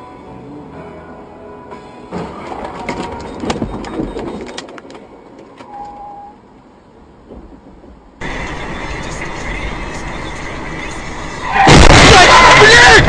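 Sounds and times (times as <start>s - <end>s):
car driving noise: 0.0s - 13.0s
truck crash bangs and clattering: 11.6s - 12.7s.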